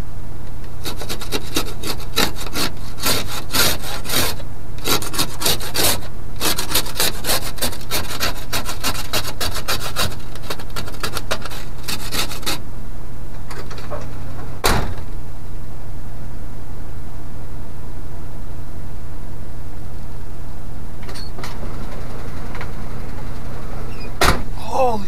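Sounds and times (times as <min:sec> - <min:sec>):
ice scraped off window glass: 0:00.8 - 0:12.6.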